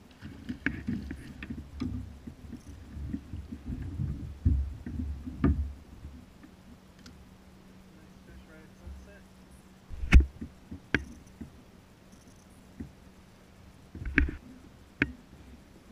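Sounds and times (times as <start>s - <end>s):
thumps against a kayak: 0.4s - 6.2s, 10.0s - 11.5s.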